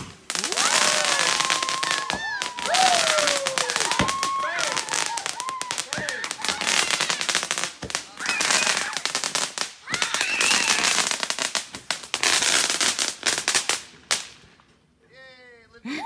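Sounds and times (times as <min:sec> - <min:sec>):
firecrackers crackling: 0:00.0 - 0:15.0.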